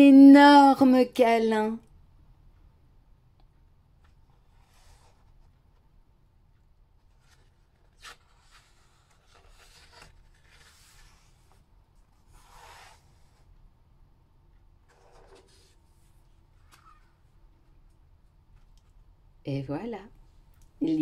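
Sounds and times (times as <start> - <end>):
paper pages rustling and turning: 6.9 - 13.6, 14.8 - 17.9.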